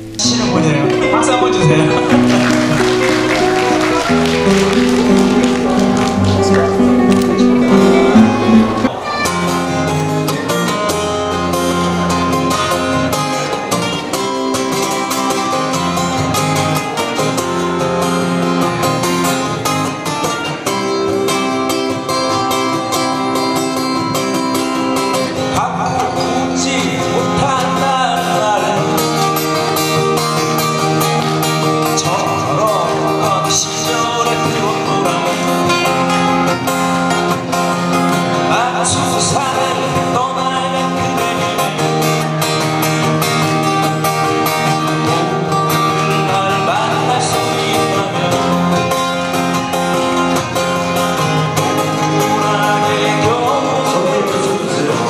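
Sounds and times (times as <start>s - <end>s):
acoustic guitars playing: 0.0s - 55.0s.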